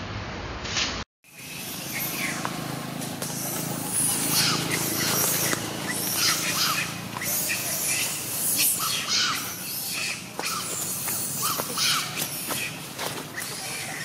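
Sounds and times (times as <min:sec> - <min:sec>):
monkey screaming: 0:01.3 - 0:14.0.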